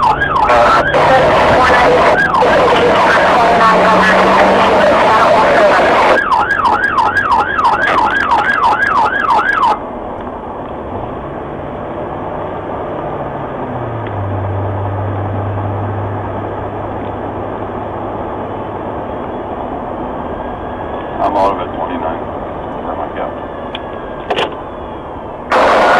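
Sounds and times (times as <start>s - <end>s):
police siren yelping: 0.0s - 9.8s, 25.5s - 25.9s
car engine hum: 0.0s - 25.9s
tyres on road: 0.0s - 25.9s.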